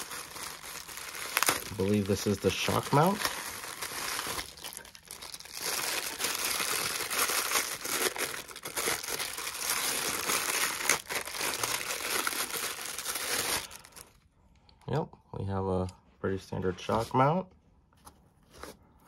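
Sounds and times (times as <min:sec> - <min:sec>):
plastic packaging crinkling: 0:00.0 - 0:14.2.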